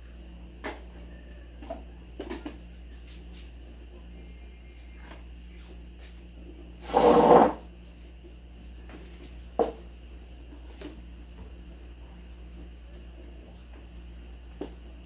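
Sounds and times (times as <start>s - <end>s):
faint steady hum: 0.0s - 15.0s
short scrape: 6.8s - 7.6s.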